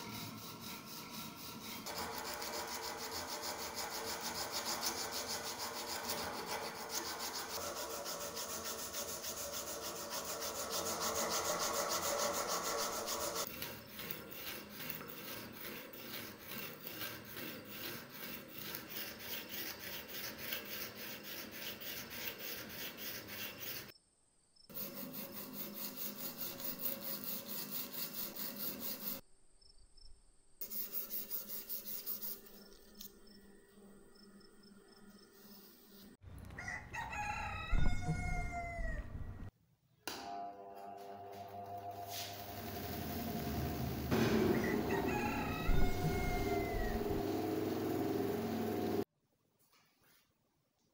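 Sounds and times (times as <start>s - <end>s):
sandpaper scraping metal: 0.0s - 23.9s, 24.7s - 29.2s, 30.6s - 33.1s, 41.9s - 49.0s.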